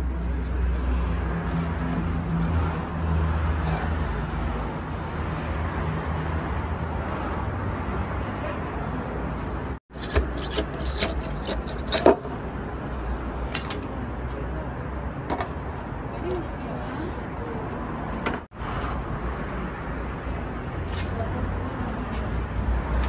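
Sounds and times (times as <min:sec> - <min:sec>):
metal rod knocking and scraping: 0:09.9 - 0:12.4, 0:13.4 - 0:13.9.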